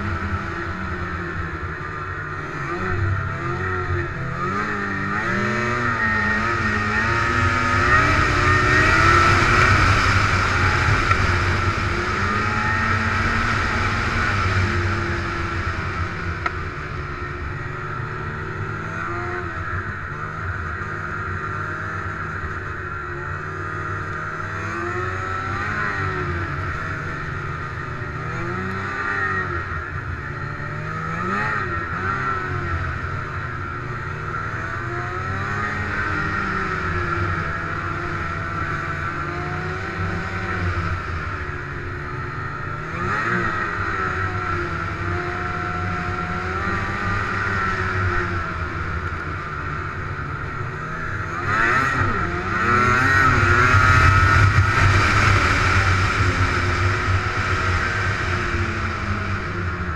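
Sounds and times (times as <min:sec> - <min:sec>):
snowmobile engine revving: 0:02.5 - 0:16.3, 0:30.6 - 0:33.0, 0:42.7 - 0:59.9.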